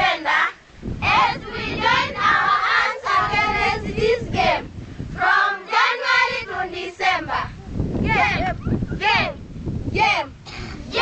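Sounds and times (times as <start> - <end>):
children singing together: 0.0 - 8.4.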